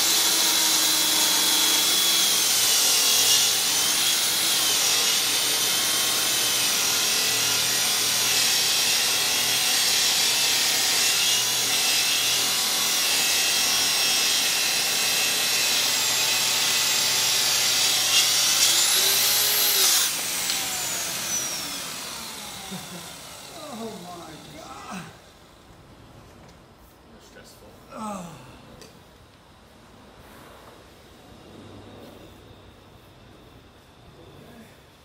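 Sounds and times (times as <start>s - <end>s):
track saw cutting board: 0.0s - 24.7s.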